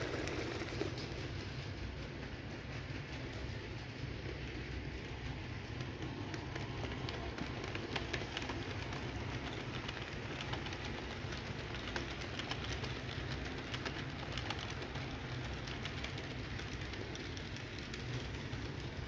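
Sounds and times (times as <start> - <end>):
model train motor hum: 0.0 - 19.0
wheels clicking over track joints: 0.0 - 19.0.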